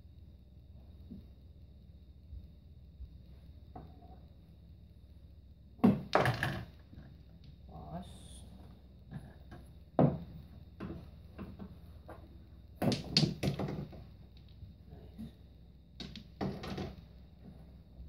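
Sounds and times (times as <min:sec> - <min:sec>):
pool balls clacking: 0:05.8 - 0:07.7, 0:09.0 - 0:17.6.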